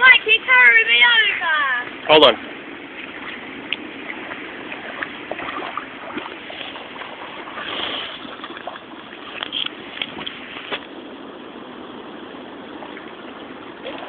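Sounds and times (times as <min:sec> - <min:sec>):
steady rush of noise: 0:00.0 - 0:14.0
dog splashing in water: 0:03.0 - 0:09.4.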